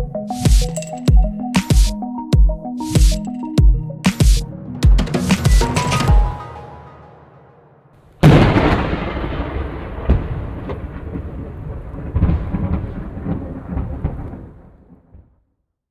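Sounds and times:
thunder crack: 4.9s - 15.4s
rolling thunder rumble: 7.1s - 15.3s.

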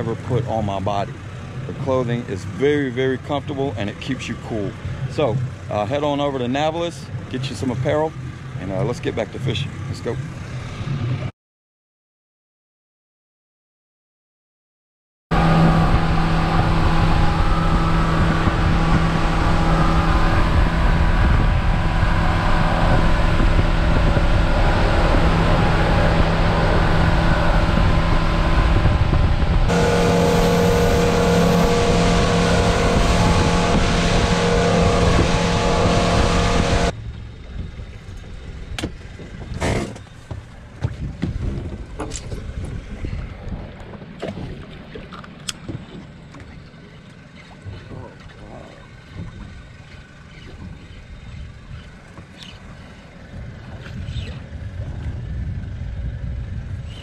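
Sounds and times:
outboard engine running: 0.0s - 11.3s, 15.3s - 57.0s
water: 0.0s - 11.3s, 15.3s - 57.0s
rushing wind: 15.3s - 40.0s, 40.6s - 46.0s.

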